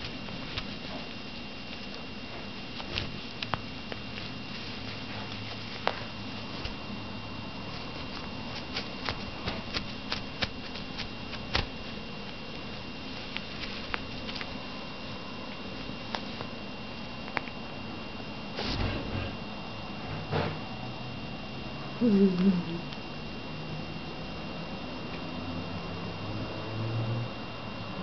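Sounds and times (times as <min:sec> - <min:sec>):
cat claws scratching fabric: 0:00.0 - 0:14.7.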